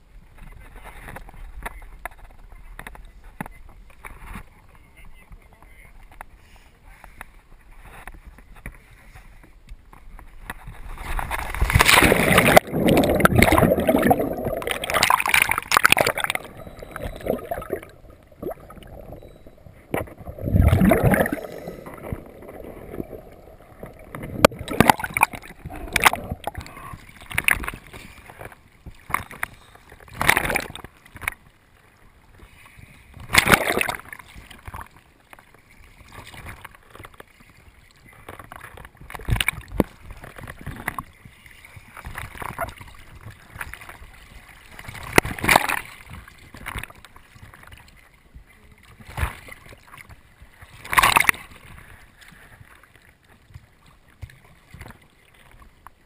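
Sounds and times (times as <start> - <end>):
sea water sloshing: 10.4 - 31.6, 32.3 - 56.0
loud water splashes: 11.4 - 27.7, 33.3 - 34.1.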